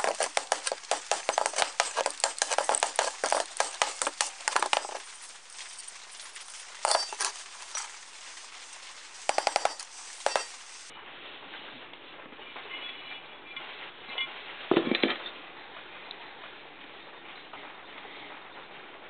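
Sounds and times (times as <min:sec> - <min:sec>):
steel parts clinking: 0:00.0 - 0:10.9.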